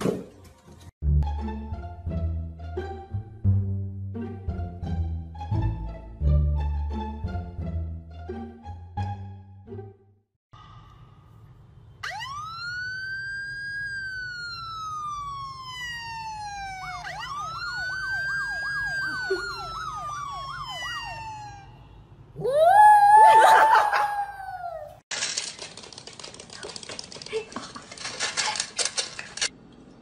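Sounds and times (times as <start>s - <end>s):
siren wailing: 12.0s - 25.0s
dog howling: 22.4s - 25.0s.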